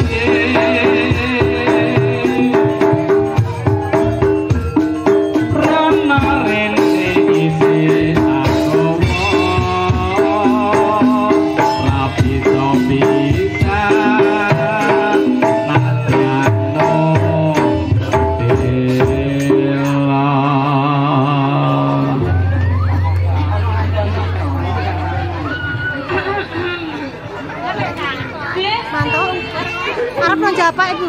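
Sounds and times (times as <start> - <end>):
hand-drum beats: 0.0 - 31.0
wavering higher melody: 22.0 - 27.1.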